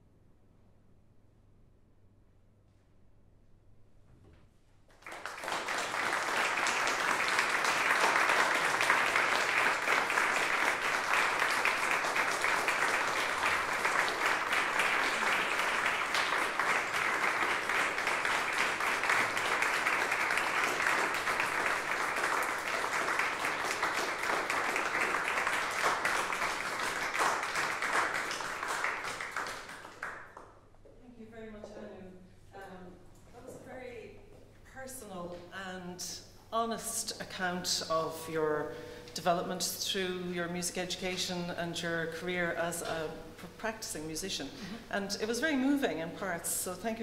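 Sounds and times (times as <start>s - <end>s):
audience applauding: 4.9s - 30.6s.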